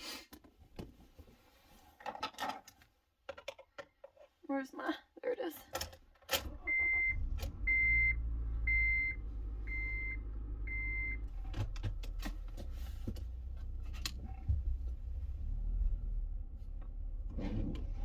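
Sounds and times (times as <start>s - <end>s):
dashboard warning chime beeping: 6.5s - 11.3s
clicks and knocks of controls: 10.7s - 15.0s.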